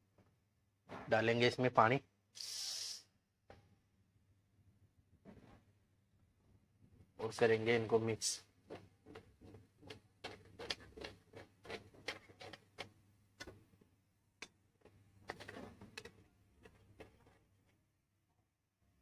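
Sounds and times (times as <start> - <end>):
utensil scraping a pan: 7.2 - 13.6, 14.8 - 17.7.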